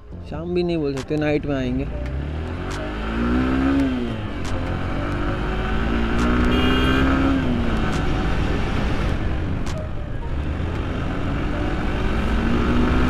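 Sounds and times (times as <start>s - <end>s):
motorcycle engine running: 1.6s - 9.4s.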